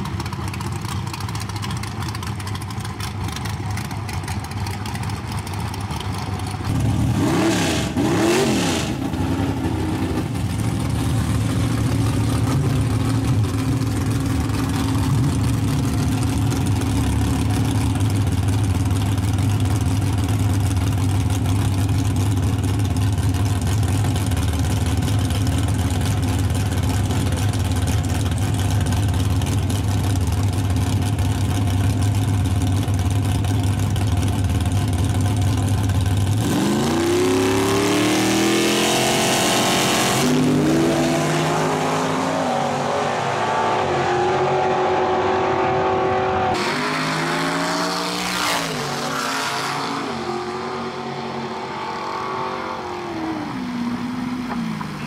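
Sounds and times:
trucks idling loudly: 0:00.0 - 0:08.2, 0:08.8 - 0:36.8
trucks accelerating away: 0:00.0 - 0:32.4, 0:35.8 - 0:55.0.

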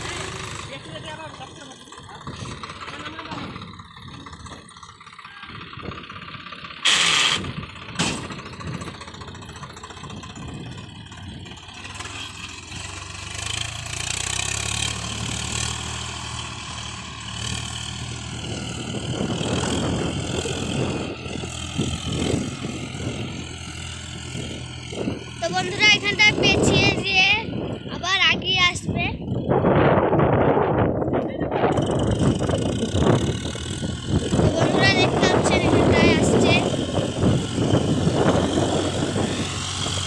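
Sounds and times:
tractor diesel engine running: 0:00.0 - 0:40.0
loud sharp noises: 0:06.8 - 0:08.3.

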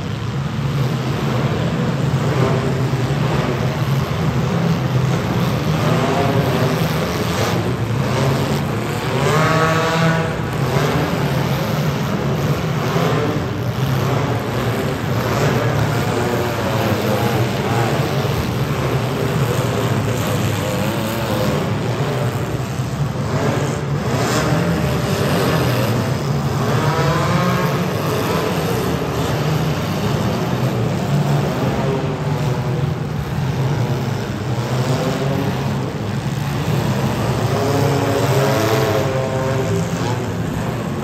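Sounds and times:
car engines revving: 0:00.0 - 0:41.0.

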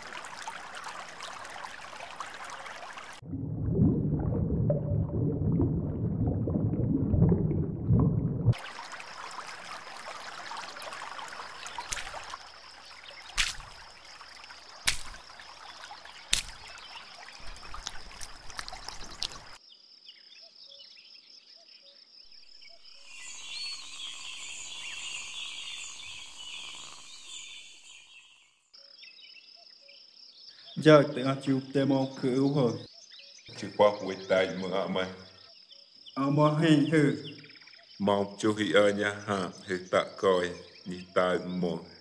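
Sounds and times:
water sloshing and splashing: 0:00.0 - 0:19.6
high insect trill: 0:08.8 - 0:19.6, 0:22.2 - 0:28.5
birds chirping: 0:10.2 - 0:21.1, 0:22.4 - 0:42.0.

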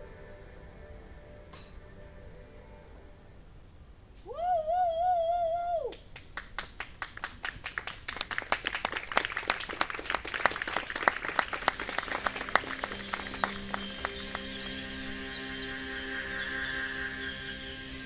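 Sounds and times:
audience applause: 0:06.2 - 0:14.8
wavering held tone: 0:12.2 - 0:18.0.

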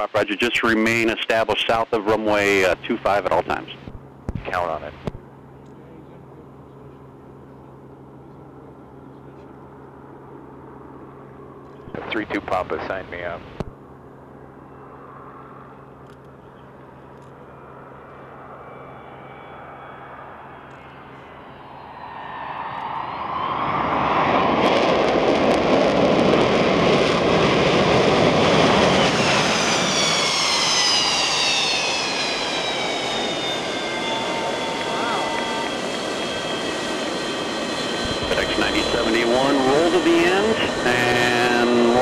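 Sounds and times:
jet engine roar: 0:00.0 - 0:42.0
high whines sliding down: 0:18.5 - 0:42.0.

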